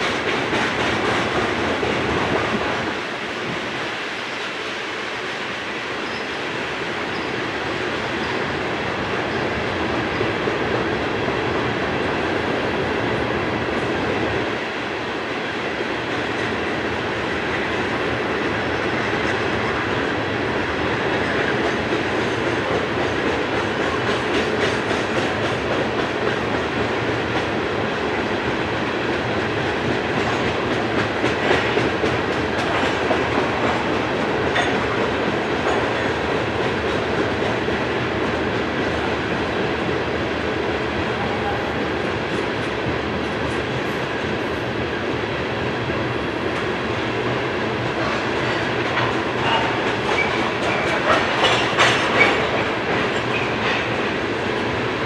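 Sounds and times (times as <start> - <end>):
steel train wheels on rails: 0.0 - 55.0
wheels clicking over rail joints: 47.8 - 54.1.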